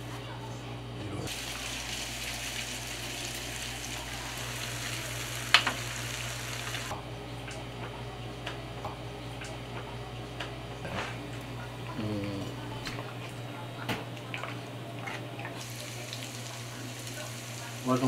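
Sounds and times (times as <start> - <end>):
oil sizzling in a pot: 1.3 - 6.9, 15.6 - 18.0.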